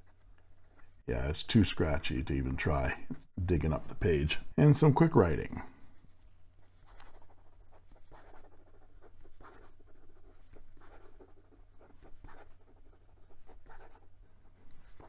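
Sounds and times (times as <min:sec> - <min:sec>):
pen nib scratching paper: 0:06.0 - 0:15.0.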